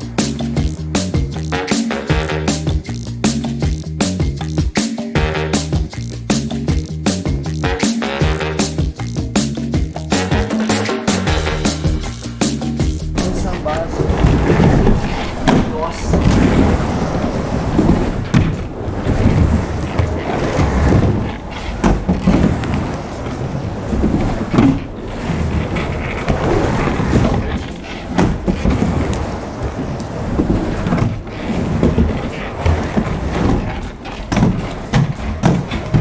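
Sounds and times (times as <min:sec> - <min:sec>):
skateboard wheels rumbling on ramp: 0:00.0 - 0:36.0
sharp knocks: 0:14.3 - 0:16.5.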